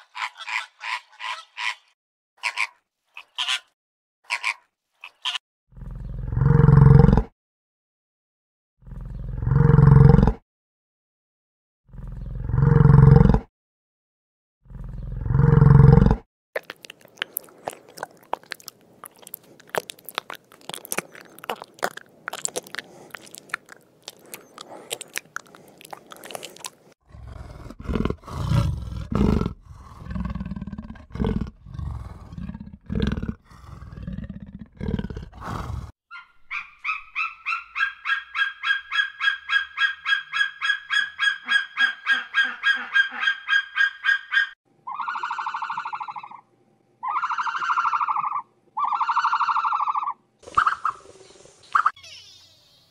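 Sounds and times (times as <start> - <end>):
yak grunting: 14.7 - 35.9
fine crackling and crunching: 16.6 - 27.0
rapid high bird calls: 36.1 - 46.4, 47.0 - 52.9.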